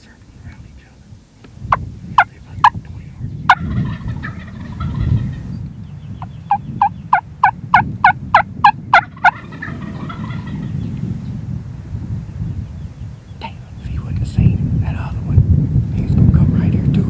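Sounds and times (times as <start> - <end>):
turkey gobbling: 3.5 - 5.4, 6.2 - 10.8
sharp turkey yelps: 6.5 - 10.6.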